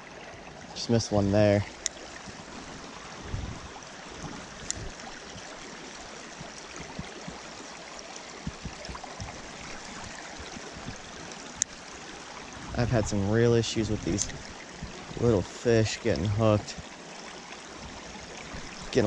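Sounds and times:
stream water rushing: 0:00.0 - 0:19.0
faint low knocks: 0:06.4 - 0:07.4, 0:08.4 - 0:11.1.

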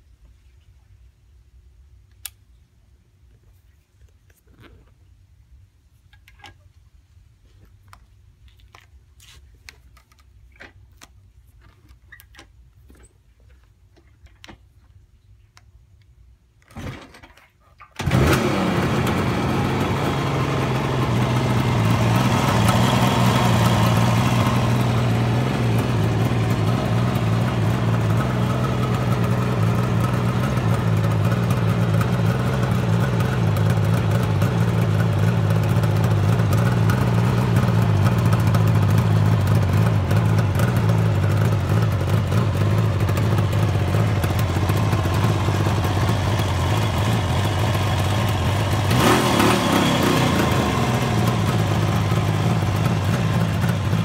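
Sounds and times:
faint clicks and handling: 0:07.4 - 0:18.0
motorcycle engine starting and idling: 0:16.6 - 0:54.0.

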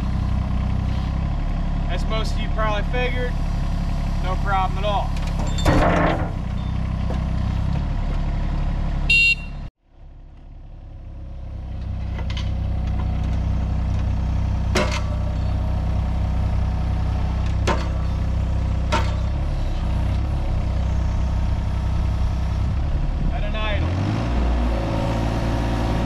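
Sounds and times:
diesel engine running: 0:00.0 - 0:26.0
sharp metal clanks: 0:05.3 - 0:06.5, 0:18.9 - 0:19.4.

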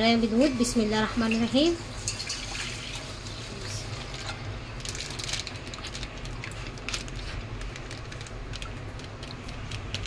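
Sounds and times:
plastic pouch crinkling: 0:04.8 - 0:10.0.

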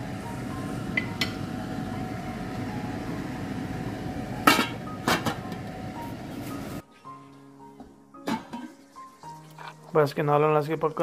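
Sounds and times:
metal lid clanking: 0:04.4 - 0:05.4, 0:08.2 - 0:08.7
pot bubbling: 0:08.5 - 0:11.0.

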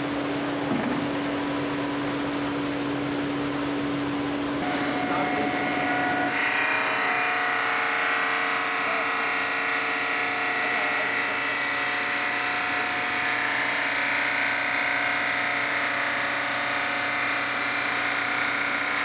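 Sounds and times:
circular saw cutting stone: 0:04.6 - 0:19.0.

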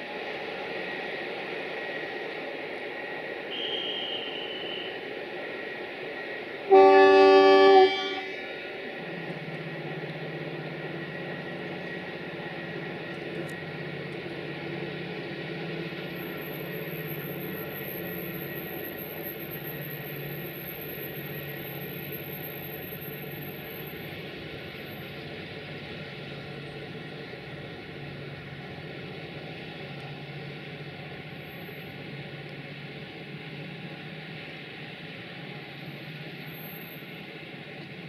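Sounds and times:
train hum and rail noise: 0:00.0 - 0:38.0
locomotive horn blast: 0:06.7 - 0:08.4.

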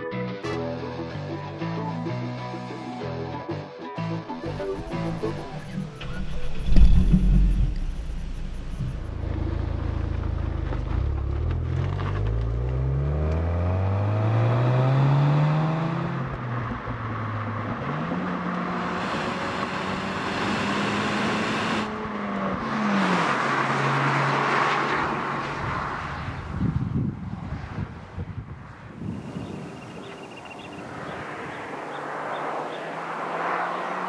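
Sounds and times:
car passing at speed: 0:04.7 - 0:34.0
car engine accelerating hard: 0:04.8 - 0:26.4, 0:30.7 - 0:34.0.

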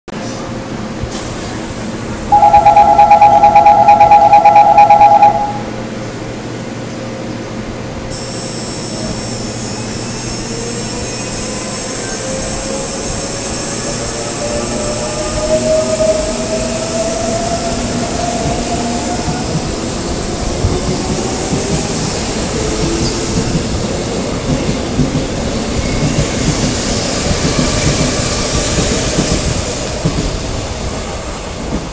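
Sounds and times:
high steady tone: 0:02.3 - 0:05.7
train door warning chime beeping: 0:02.3 - 0:05.7.

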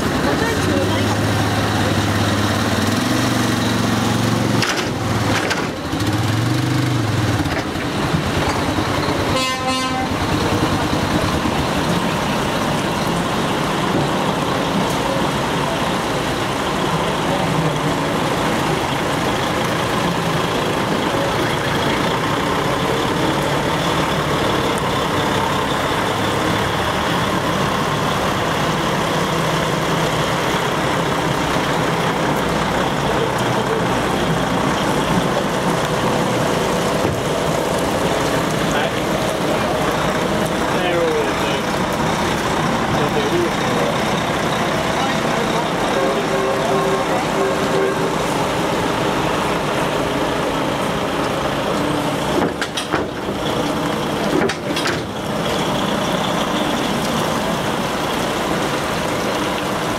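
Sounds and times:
truck diesel engines running: 0:00.0 - 0:59.9
truck horn toot: 0:09.2 - 0:10.3, 0:45.9 - 0:48.4.

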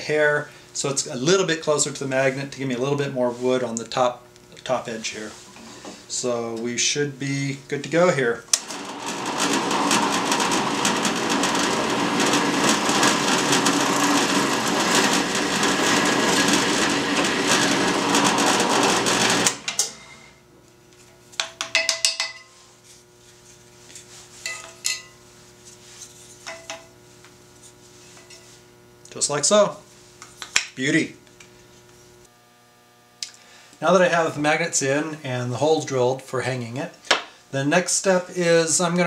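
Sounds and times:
drill press boring wood: 0:08.5 - 0:20.0.

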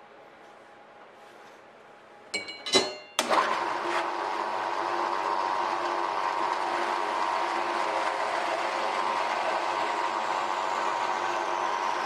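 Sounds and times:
metallic clanks ringing: 0:02.4 - 0:03.2
metal-cutting band saw running: 0:03.2 - 0:12.0.

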